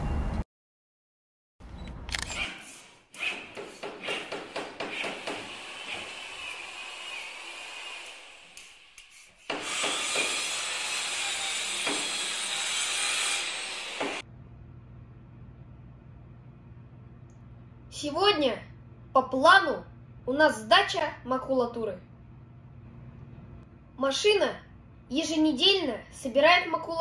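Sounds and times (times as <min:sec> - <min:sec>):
power tool whirring: 0:02.4 - 0:14.2.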